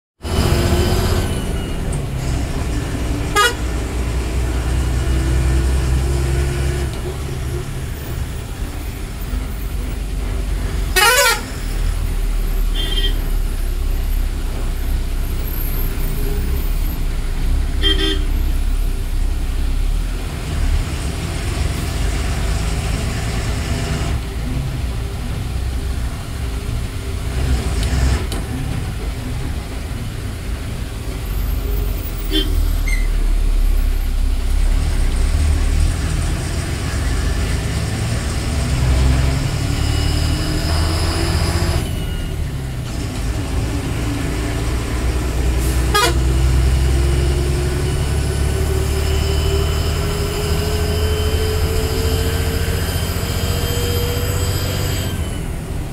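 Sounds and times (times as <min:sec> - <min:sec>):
bus diesel engine running: 0:00.2 - 0:55.9
vehicle horns tooting: 0:03.3 - 0:03.8, 0:10.9 - 0:11.8, 0:12.6 - 0:13.5, 0:17.8 - 0:18.6, 0:32.0 - 0:33.2, 0:45.6 - 0:46.6.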